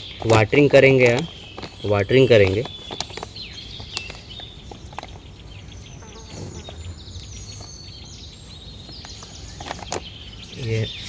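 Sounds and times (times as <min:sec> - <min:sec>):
soil pressed into plastic bag: 0:00.0 - 0:05.2
birds chirping: 0:00.0 - 0:11.0.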